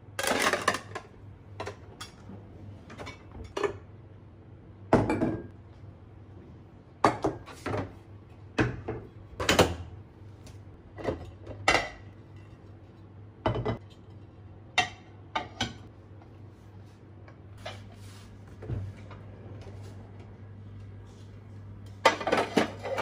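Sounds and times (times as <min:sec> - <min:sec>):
dishes knocking and clinking: 0:04.9 - 0:05.5, 0:07.0 - 0:08.0, 0:08.6 - 0:09.9, 0:13.4 - 0:14.0, 0:22.0 - 0:23.0.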